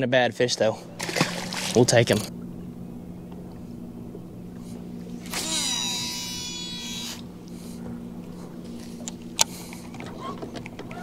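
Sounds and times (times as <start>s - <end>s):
steady low hum: 0.0s - 11.0s
fishing reel spool whining: 4.8s - 11.0s.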